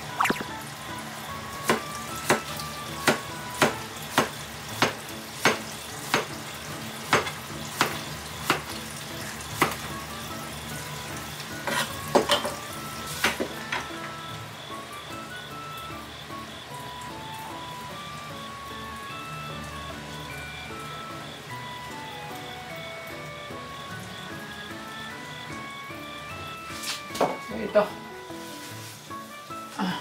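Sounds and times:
soft background music: 0.0s - 30.0s
knife chopping on cutting board: 1.6s - 6.3s, 7.1s - 8.7s.

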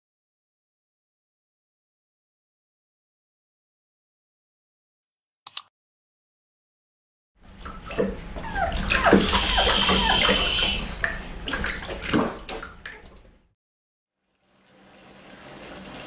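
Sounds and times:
water splashing in bath: 7.5s - 13.4s
puppies whining: 8.4s - 11.0s.

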